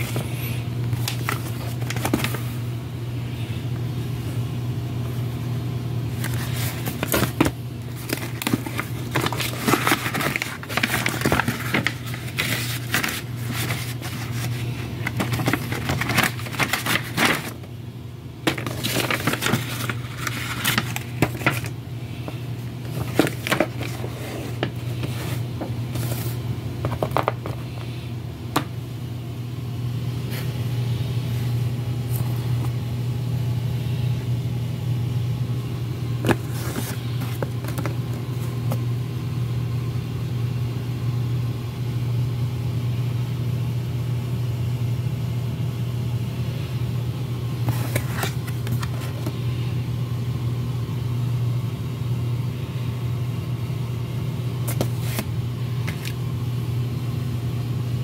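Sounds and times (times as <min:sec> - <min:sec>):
paper rustling and crinkling: 0:00.0 - 0:02.6, 0:06.1 - 0:17.7, 0:18.4 - 0:28.0, 0:36.2 - 0:38.8, 0:47.6 - 0:49.4, 0:54.6 - 0:56.2
steady low hum: 0:00.0 - 0:58.0.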